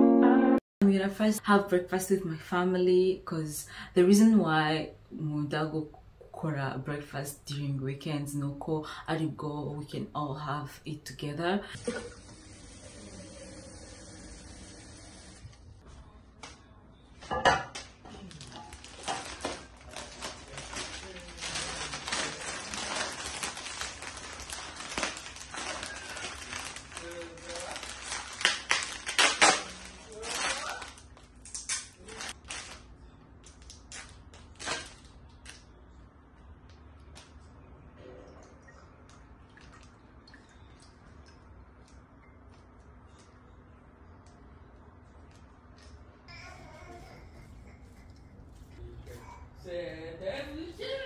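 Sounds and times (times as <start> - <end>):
dishes and utensils clinking: 17.2 - 18.0.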